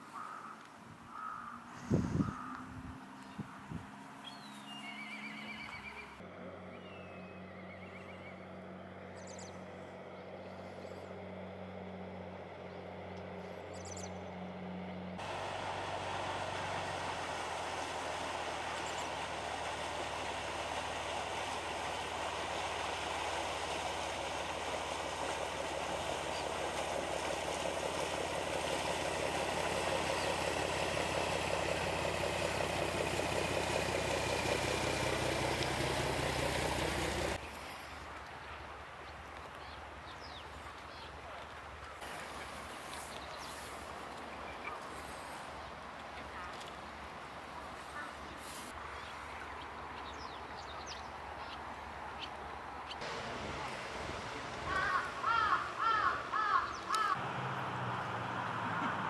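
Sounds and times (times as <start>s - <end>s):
boat engine droning: 0.0s - 38.2s, 52.5s - 59.0s
rushing wash of boat wake: 15.2s - 38.2s, 53.0s - 59.0s.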